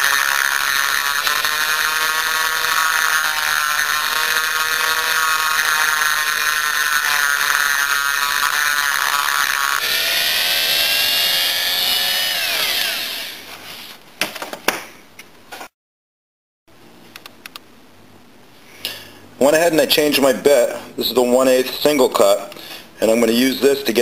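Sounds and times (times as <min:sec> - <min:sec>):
rotary tool grinding whine: 0:00.0 - 0:13.6.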